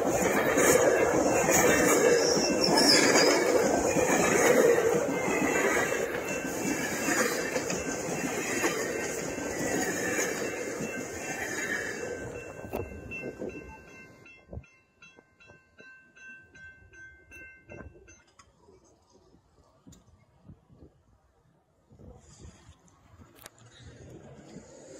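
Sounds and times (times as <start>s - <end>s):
level-crossing warning bell: 0.0s - 18.4s
train coaches rolling on rails: 0.0s - 20.4s, 23.0s - 24.9s.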